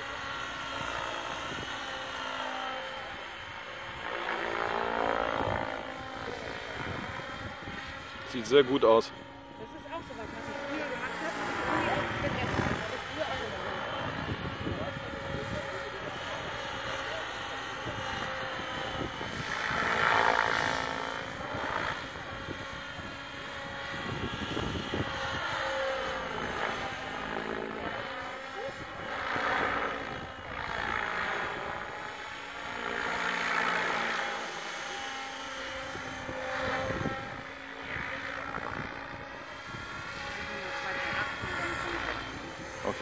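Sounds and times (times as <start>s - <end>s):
model helicopter rotor whine: 0.0s - 43.0s.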